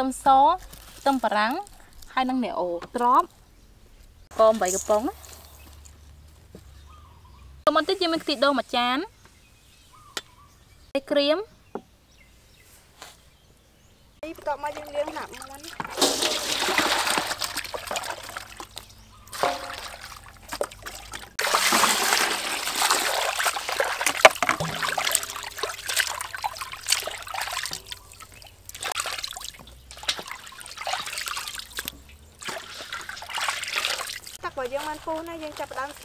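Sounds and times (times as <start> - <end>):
water splashing in a metal basin: 14.3 - 36.0
water pouring from a scoop: 14.7 - 36.0.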